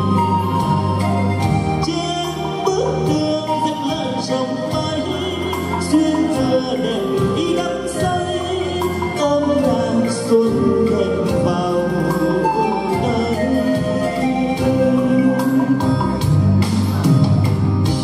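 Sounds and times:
karaoke backing track: 0.0 - 18.0
man singing into a microphone: 1.8 - 16.0.

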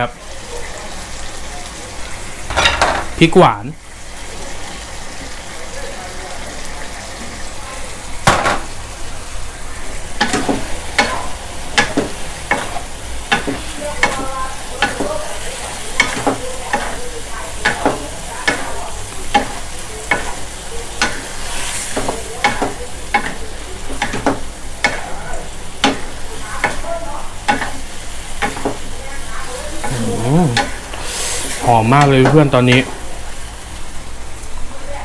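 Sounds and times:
food sizzling in a wok: 0.0 - 35.0
wooden spatula scraping a wok: 19.3 - 25.1, 29.7 - 32.4.

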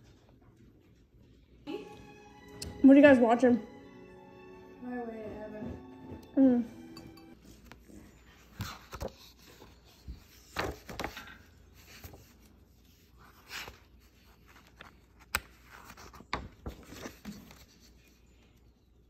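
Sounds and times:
paper pages turning: 7.5 - 18.3.

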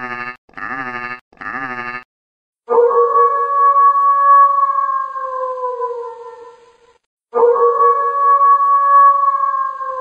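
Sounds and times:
wolf howling: 2.7 - 6.6, 7.4 - 10.0.

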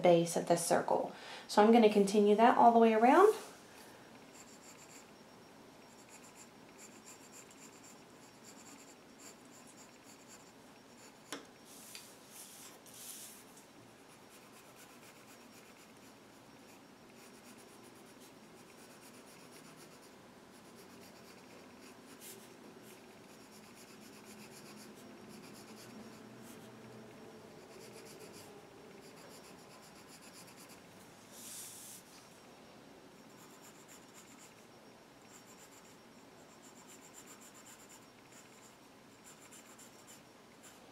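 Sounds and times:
pencil scratching on paper: 4.3 - 5.2, 5.8 - 11.4, 14.1 - 26.7, 27.6 - 30.8, 33.3 - 34.7, 35.3 - 40.8.

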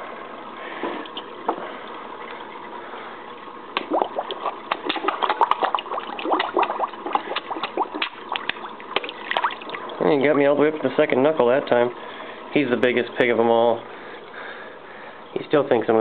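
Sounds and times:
fish gulping and splashing: 0.5 - 10.9.

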